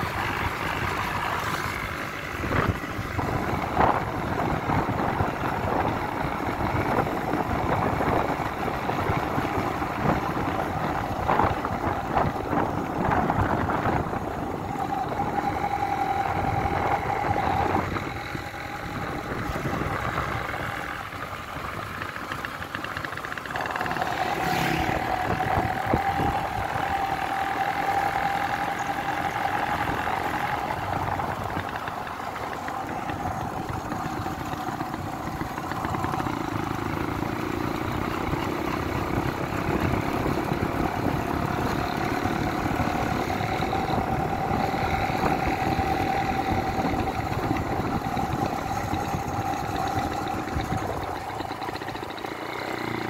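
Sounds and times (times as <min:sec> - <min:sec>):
motorcycle engine running: 0:00.0 - 0:53.0
road noise: 0:00.0 - 0:53.0
steady whine: 0:00.0 - 0:53.0.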